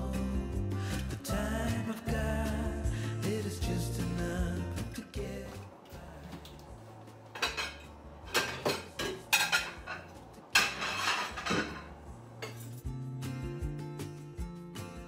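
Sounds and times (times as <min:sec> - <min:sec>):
dishes clinking and clattering: 0:07.2 - 0:12.8.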